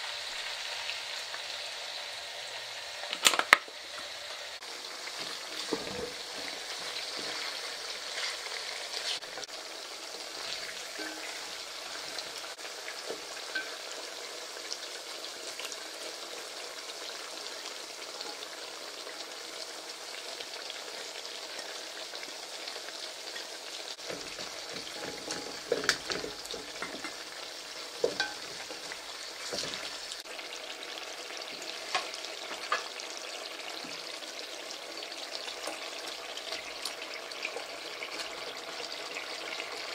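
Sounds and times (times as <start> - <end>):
carrots sizzling in oil: 0.0 - 39.9
wooden spoon stirring: 24.0 - 27.3, 28.0 - 30.2
spoon knocking against pot: 24.1 - 27.2, 28.0 - 29.0.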